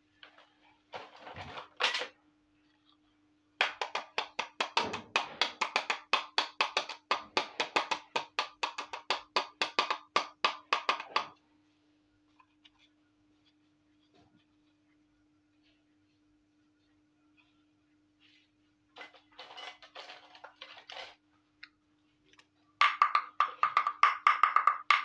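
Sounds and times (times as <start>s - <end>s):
scrape and knock: 18.2s - 21.2s.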